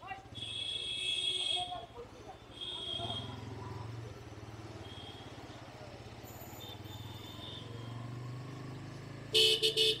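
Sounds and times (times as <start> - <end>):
motorcycle engine running: 1.8 - 6.2.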